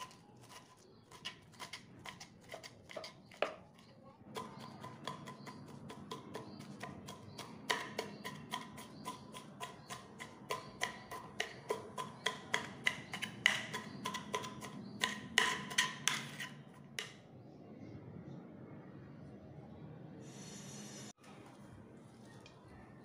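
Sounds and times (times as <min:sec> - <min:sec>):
knife chopping on wooden board: 0:00.0 - 0:17.2.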